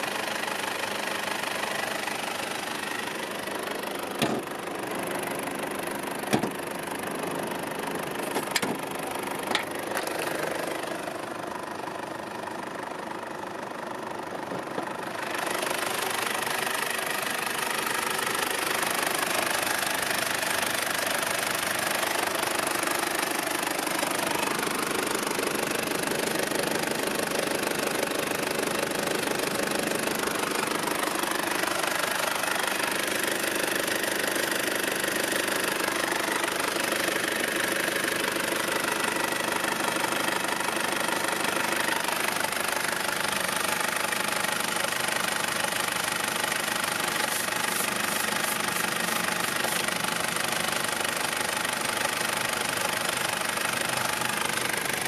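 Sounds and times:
diesel engine idling: 0.0 - 55.0.

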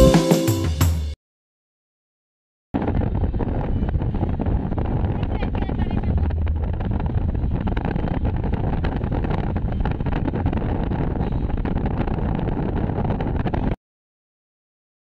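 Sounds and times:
car road and wind noise: 2.8 - 13.8
wind buffeting microphone: 2.8 - 13.8.

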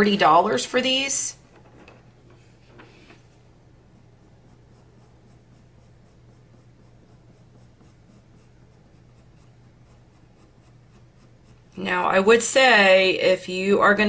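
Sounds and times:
colored pencil shading on paper: 3.2 - 12.9.

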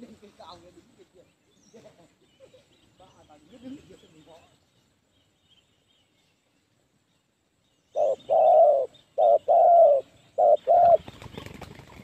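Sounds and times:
dove cooing: 7.9 - 11.8.

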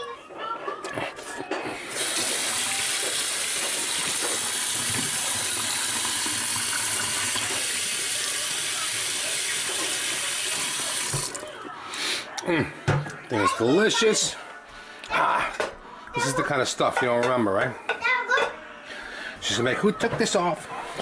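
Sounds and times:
faucet running into a steel sink: 1.8 - 11.4
hands rinsing under water: 1.8 - 11.4.

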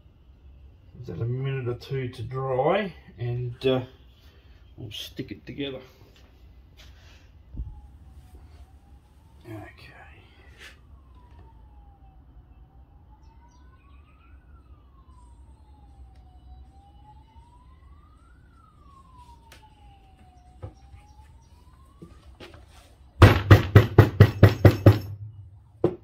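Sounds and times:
siren wailing faintly: 0.0 - 26.0
rapid sharp knocks: 23.2 - 25.2.

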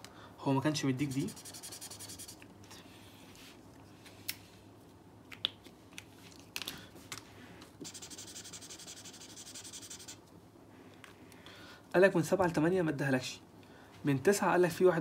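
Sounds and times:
felt-tip marker writing: 1.0 - 2.4, 7.8 - 10.2.

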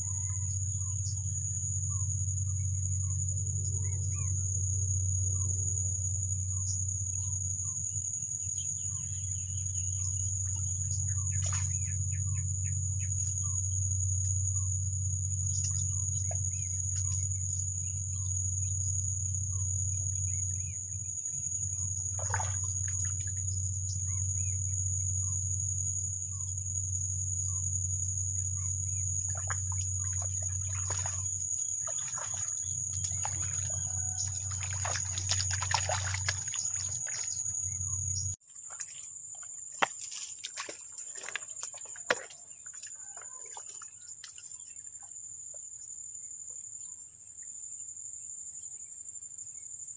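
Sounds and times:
high-pitched insect drone: 0.0 - 38.4
low steady hum: 0.0 - 38.4.

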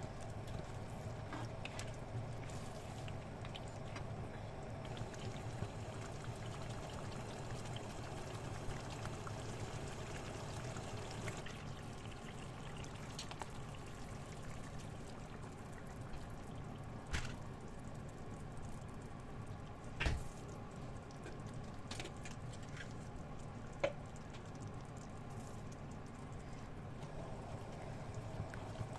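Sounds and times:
liquid pouring: 0.0 - 18.8.

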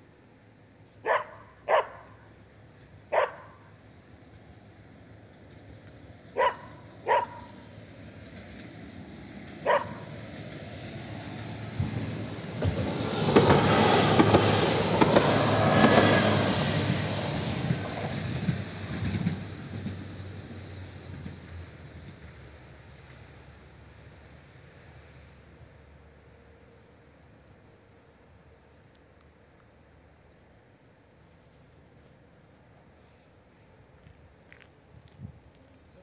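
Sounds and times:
train rumbling past: 0.0 - 36.0
dog barking: 1.0 - 2.2, 3.1 - 3.7, 6.4 - 7.6, 9.6 - 10.1.

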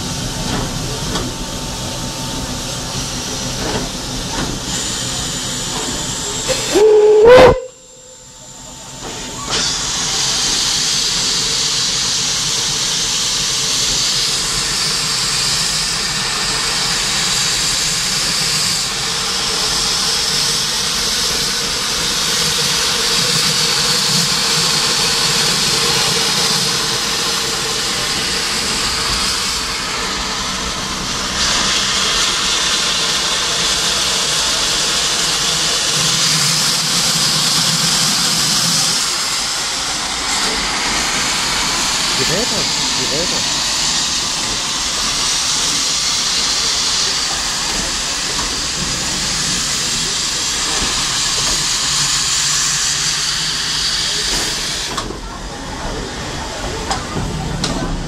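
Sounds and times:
steam locomotive moving off: 0.0 - 58.0
steam hissing from drain cocks: 9.4 - 55.2.

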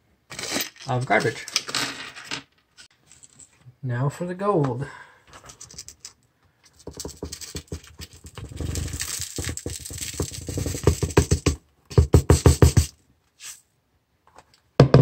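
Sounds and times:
dry scraping: 6.7 - 13.6
plastic pan tapping: 9.4 - 12.9.

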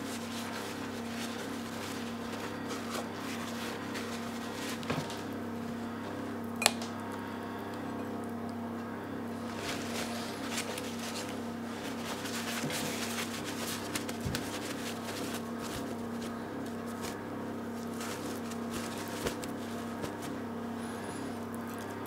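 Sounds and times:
paper towel dabbing fish: 0.0 - 5.3, 9.4 - 20.5
paper towel rustling and crinkling: 0.0 - 6.0, 9.4 - 21.9
steady low hum: 0.0 - 22.0.

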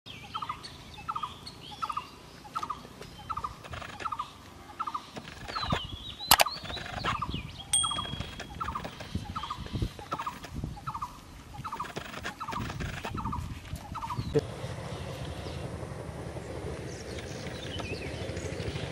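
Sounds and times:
bird pulsed call: 0.1 - 15.6
high bird chirps: 0.2 - 11.1
sharp click: 5.2 - 7.2.

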